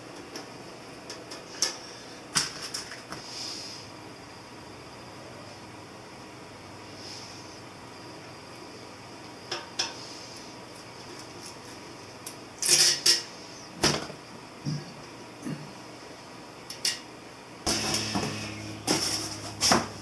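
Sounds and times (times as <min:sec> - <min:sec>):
steady low hum: 0:17.4 - 0:20.0.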